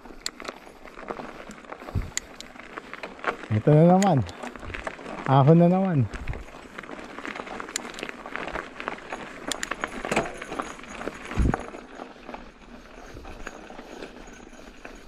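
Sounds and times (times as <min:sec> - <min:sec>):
bike rattling over bumps: 0:00.0 - 0:15.0
tyres crunching over gravel: 0:00.0 - 0:15.0.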